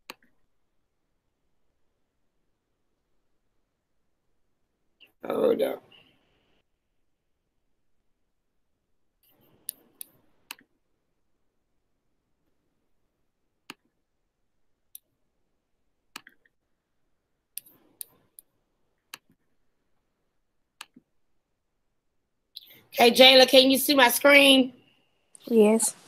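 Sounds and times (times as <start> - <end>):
computer mouse clicks: 0.0 - 0.4, 9.2 - 10.7, 13.6 - 14.0, 16.1 - 16.6, 17.6 - 18.5, 19.1 - 19.5, 20.8 - 21.1.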